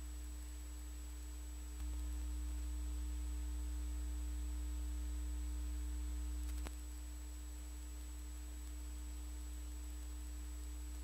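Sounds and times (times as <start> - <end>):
electrical mains hum: 0.0 - 11.0
faint hiss: 0.0 - 11.0
faint click: 1.7 - 2.7, 6.4 - 6.8, 8.6 - 8.8.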